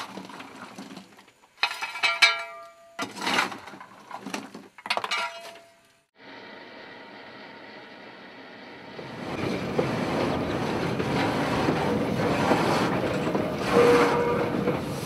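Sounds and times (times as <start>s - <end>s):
steam locomotive hissing: 8.1s - 15.0s.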